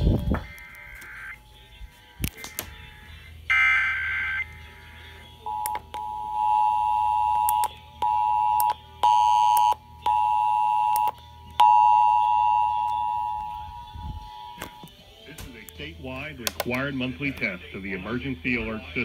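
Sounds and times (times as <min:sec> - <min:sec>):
data burst tones: 0:00.0 - 0:01.6
clicks: 0:02.2 - 0:02.8
low hum: 0:09.8 - 0:15.0.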